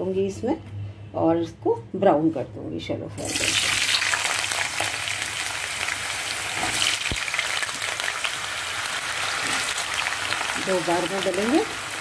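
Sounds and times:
potatoes sizzling in hot oil: 3.2 - 12.0.

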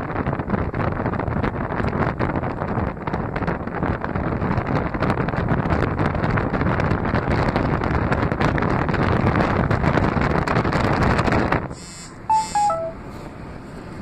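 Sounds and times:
wind buffeting microphone: 0.0 - 11.8
descending short tones: 12.3 - 13.1.

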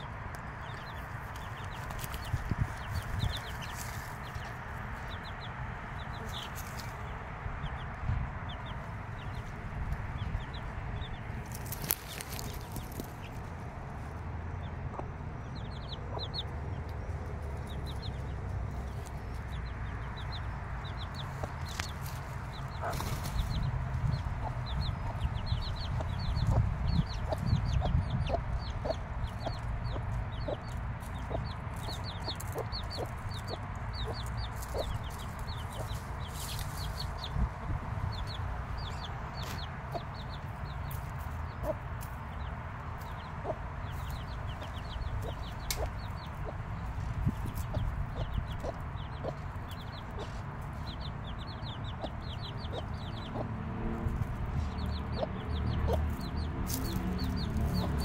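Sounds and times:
chicks peeping: 0.0 - 58.0
hen clucking: 14.6 - 16.6, 19.4 - 37.4, 38.1 - 53.6.

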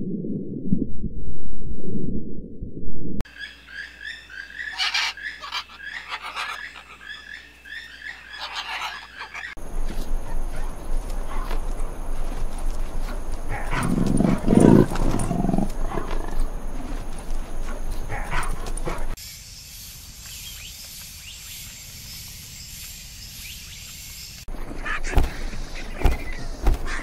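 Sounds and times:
leopard cubs growling: 8.2 - 19.2.

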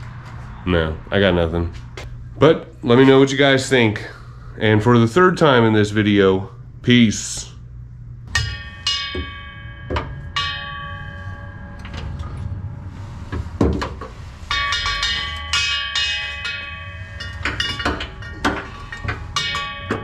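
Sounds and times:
steady low bass: 0.0 - 20.0
bell-like struck notes: 8.2 - 20.0.

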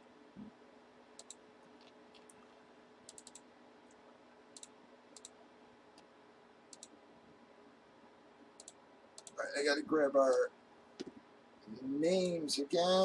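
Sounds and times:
low steady hum: 0.0 - 13.0
mouse and keyboard clicking: 1.2 - 2.4, 3.1 - 3.4, 6.7 - 7.0, 8.6 - 9.4.

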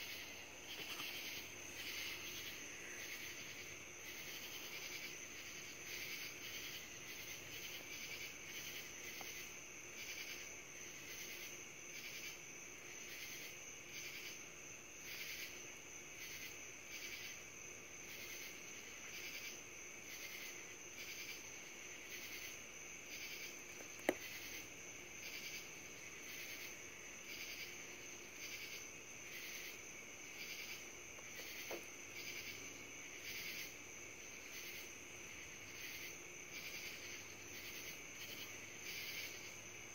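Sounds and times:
pulsing insect calls: 0.0 - 12.4, 22.0 - 39.7
crickets trilling: 0.0 - 39.9.

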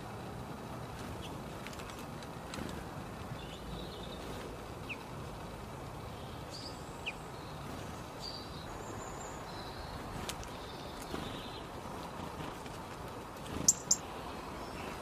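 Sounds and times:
background rumble and hiss: 0.0 - 15.0
songbirds chirping: 0.0 - 15.0.

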